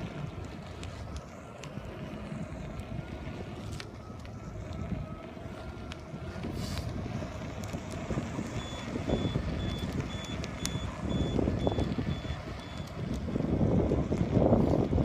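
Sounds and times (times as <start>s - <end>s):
low rumbling noise: 0.0s - 15.0s
electronic warning beeps: 8.5s - 13.0s.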